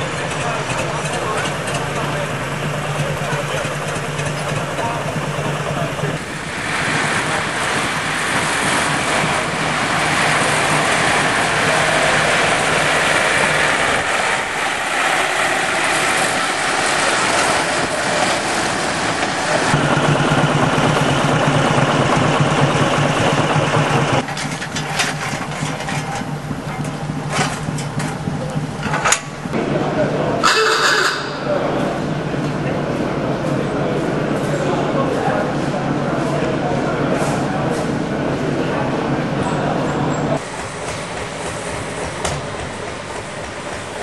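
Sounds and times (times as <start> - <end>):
locomotive engine humming: 0.0 - 44.0
sharp clicks and knocks: 24.2 - 29.6.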